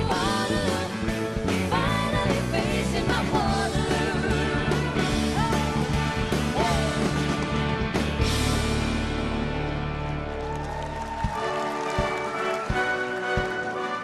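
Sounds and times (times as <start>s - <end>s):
women singing: 0.0s - 7.2s
orchestra and band: 0.0s - 14.0s.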